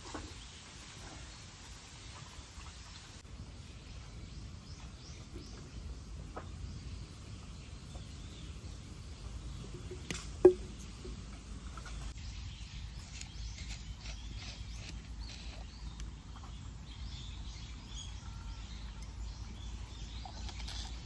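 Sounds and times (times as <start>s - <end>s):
drink can knocking on wood: 9.8s - 11.2s.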